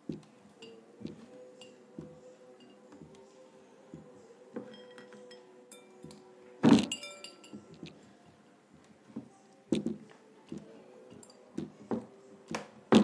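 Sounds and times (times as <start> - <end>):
ceramic plate clinking: 6.9 - 7.8.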